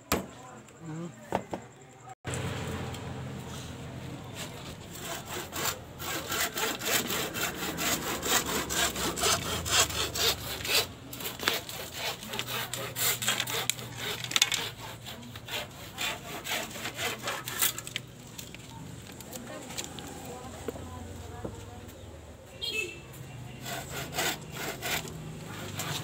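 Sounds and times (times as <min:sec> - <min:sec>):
hand saw cutting bamboo: 0:04.2 - 0:18.5, 0:23.6 - 0:26.0.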